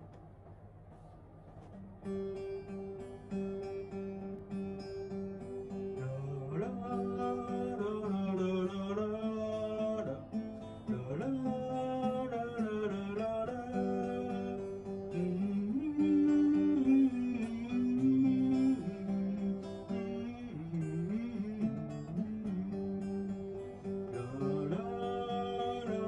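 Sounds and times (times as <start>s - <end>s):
acoustic guitar: 0.0s - 26.0s
person singing: 5.9s - 26.0s.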